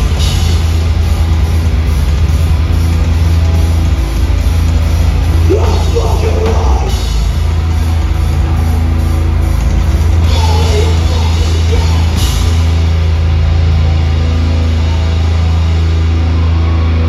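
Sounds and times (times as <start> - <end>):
drum kit pounding: 0.0 - 16.5
heavy band playing live: 0.0 - 17.0
person singing: 5.5 - 7.0, 10.2 - 12.5.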